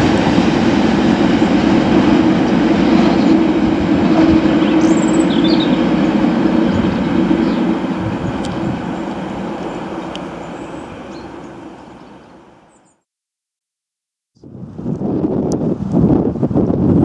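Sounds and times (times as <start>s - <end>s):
wind on microphone: 0.0s - 11.6s, 14.4s - 17.0s
locomotive engine drone: 0.0s - 12.8s.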